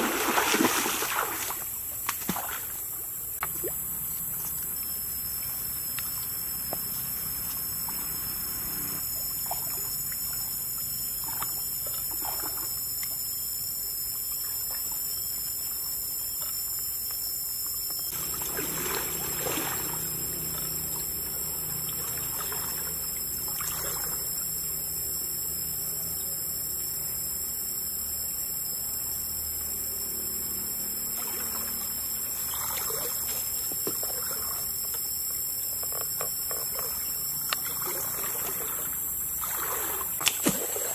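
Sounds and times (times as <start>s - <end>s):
feet splashing through water: 0.0s - 2.8s, 18.1s - 24.3s, 31.2s - 34.8s, 36.7s - 40.9s
creek water trickling: 18.1s - 25.2s, 31.0s - 40.9s.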